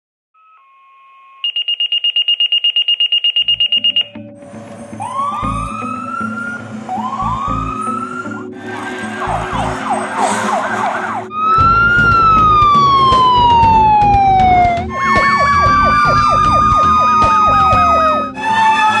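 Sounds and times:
warbling siren yelp: 0:00.4 - 0:04.2, 0:05.0 - 0:19.0
siren wail falling in pitch: 0:05.0 - 0:19.0.

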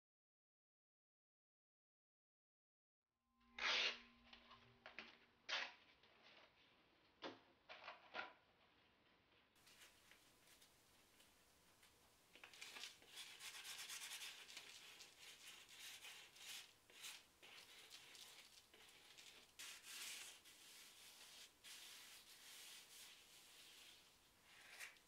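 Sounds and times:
sandpaper scraping on cement: 0:12.6 - 0:25.0.

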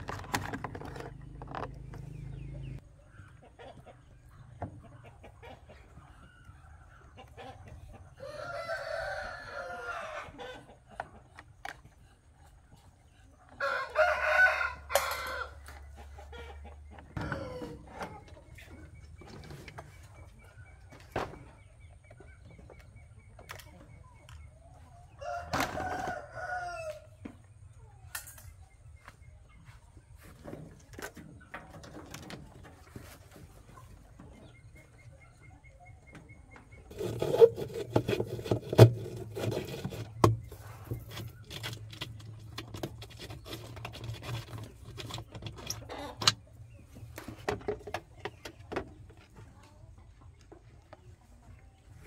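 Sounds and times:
rooster crowing: 0:08.2 - 0:10.4, 0:13.6 - 0:15.6, 0:25.2 - 0:27.1.

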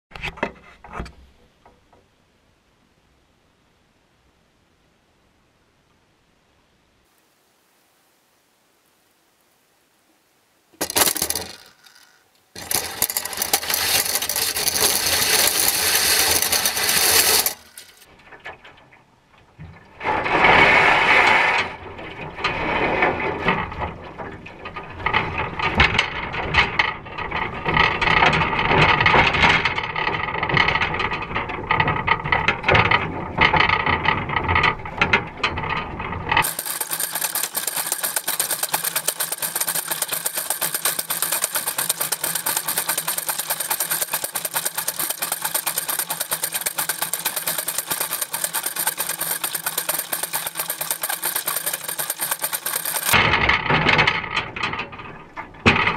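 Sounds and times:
small engine running: 0:10.8 - 0:18.1, 0:36.4 - 0:53.2
wire crab pot rattling: 0:10.8 - 0:18.9, 0:25.0 - 0:55.9.

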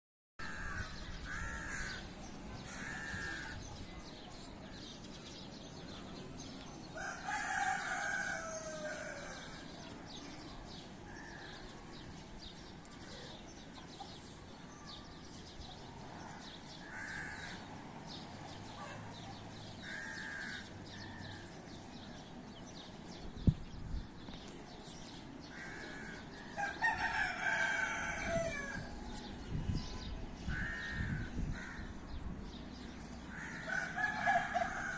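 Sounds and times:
rooster crowing: 0:07.0 - 0:09.6, 0:26.5 - 0:28.9, 0:33.5 - 0:34.9.

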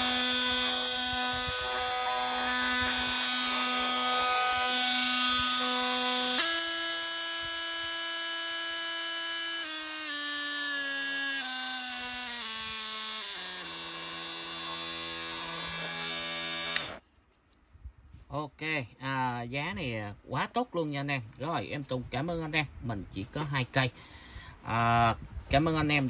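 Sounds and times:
oscillating multi-tool whine: 0:00.0 - 0:17.1.

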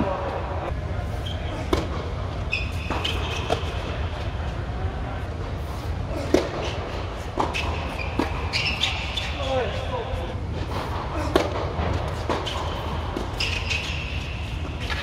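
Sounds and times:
steady low hum: 0:00.0 - 0:15.0
racket hitting tennis ball: 0:01.7 - 0:02.1, 0:06.2 - 0:09.3, 0:10.6 - 0:15.0.

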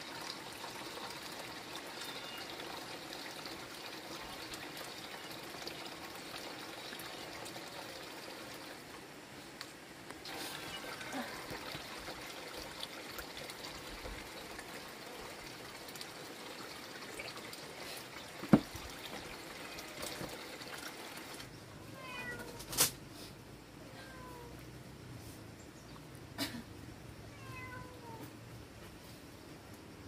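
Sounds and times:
water trickling and sloshing: 0:00.0 - 0:09.5, 0:10.1 - 0:22.8.

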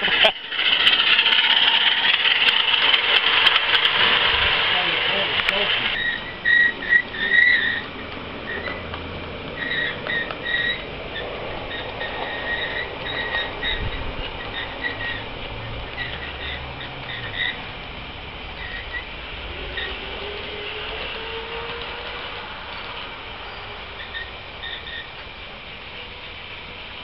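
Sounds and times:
small ride-on train running: 0:00.0 - 0:27.0
short high squeaks: 0:05.1 - 0:08.9, 0:09.6 - 0:17.6, 0:18.6 - 0:25.2.

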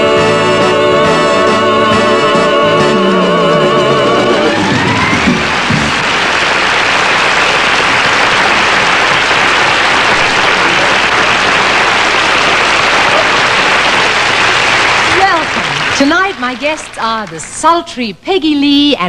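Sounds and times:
audience applauding: 0:04.3 - 0:17.8.

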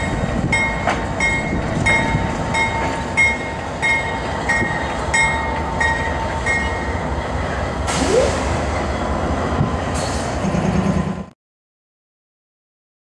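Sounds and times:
locomotive bell ringing: 0:00.0 - 0:09.2
diesel locomotive rumbling: 0:00.0 - 0:11.4.

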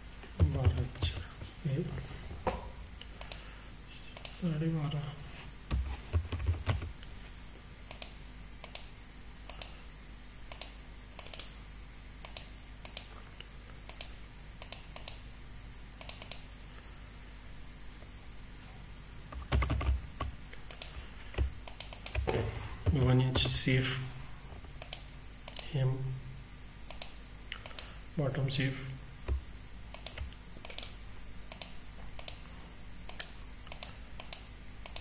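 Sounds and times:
computer keyboard and mouse clicks: 0:03.2 - 0:03.4, 0:05.7 - 0:07.0, 0:07.9 - 0:08.9, 0:09.5 - 0:09.8, 0:10.5 - 0:11.5, 0:12.2 - 0:13.1, 0:13.9 - 0:15.2, 0:16.0 - 0:16.5, 0:19.3 - 0:22.3, 0:24.8 - 0:25.7, 0:26.9 - 0:27.9, 0:29.3 - 0:32.4, 0:33.1 - 0:35.0.

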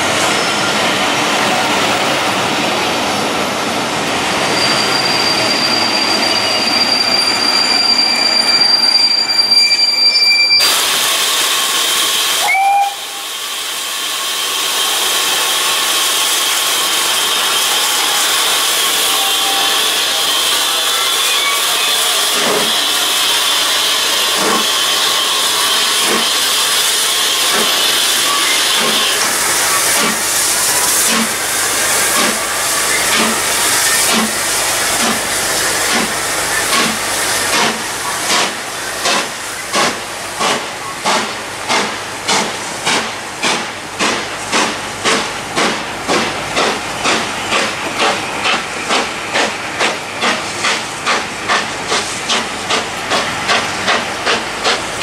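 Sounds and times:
railway coaches rolling with whine: 0:00.0 - 0:55.0
steam locomotive hissing: 0:00.0 - 0:55.0.

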